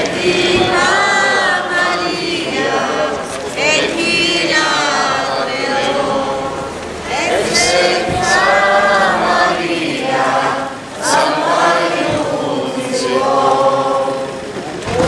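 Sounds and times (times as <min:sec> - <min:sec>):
group singing a hymn: 0:00.0 - 0:15.0.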